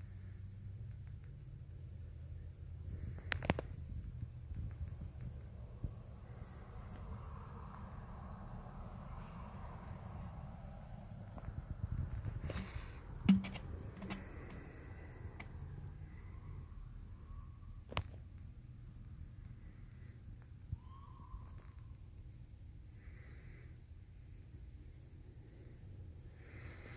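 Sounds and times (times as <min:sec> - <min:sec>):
cricket chirping: 0:00.0 - 0:26.9
low thump: 0:12.6 - 0:14.4.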